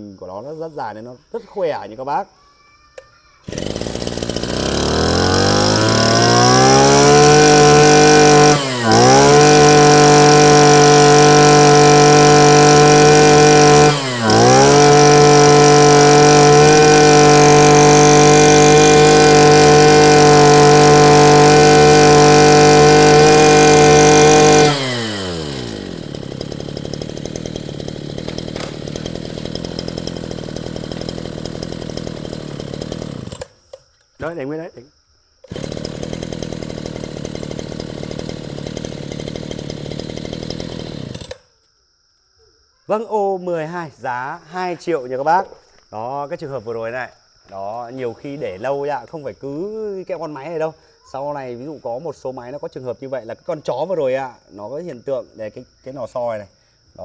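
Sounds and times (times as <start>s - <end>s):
brush cutter engine revving: 3.4s - 33.8s, 35.4s - 41.5s.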